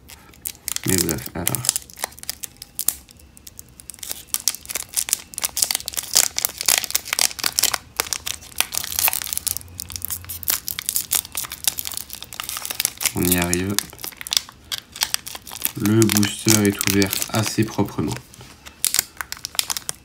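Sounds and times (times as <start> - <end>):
foil pack crinkling as torn open: 0.1 - 20.0.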